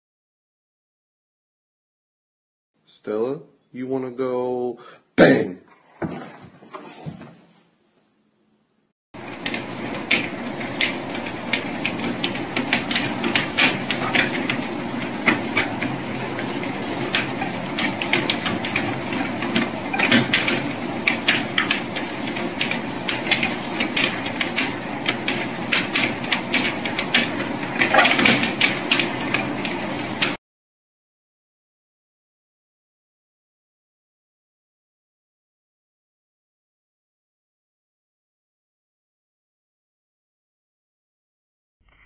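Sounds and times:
paws tapping on treadmill belt: 9.2 - 30.4
treadmill whirring: 9.2 - 30.4.

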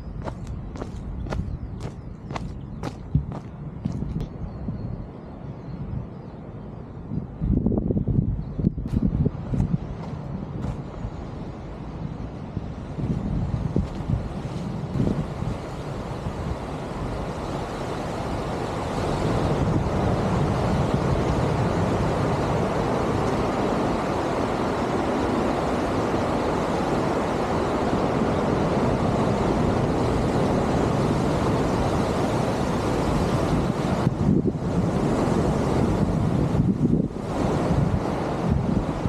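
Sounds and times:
wind buffeting microphone: 0.0 - 39.0
surf washing against breakwater: 10.0 - 39.0.

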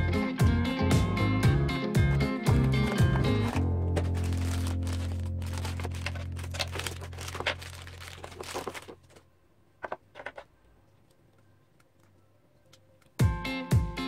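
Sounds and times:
music with a beat: 0.0 - 4.1, 13.2 - 14.0
plastic bag crinkling: 2.8 - 9.2.

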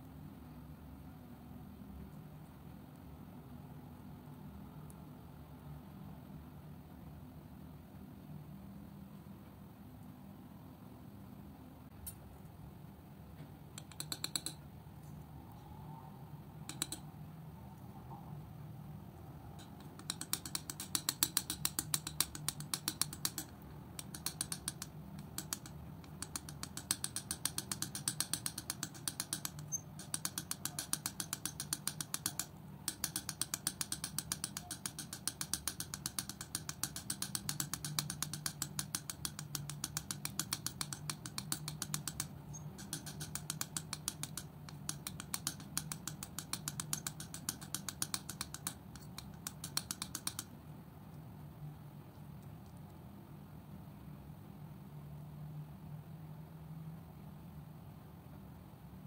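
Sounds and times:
palette knife scraping paint: 19.6 - 50.4.

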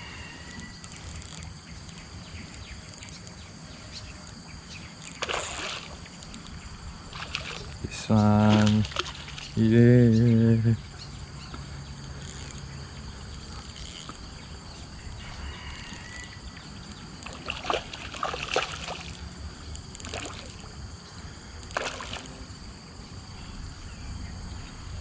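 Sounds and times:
insects chirring: 0.0 - 25.0
fish splashing at the surface: 5.2 - 6.0, 7.1 - 7.8, 8.4 - 9.6, 17.2 - 19.2, 20.0 - 20.7, 21.7 - 22.3.

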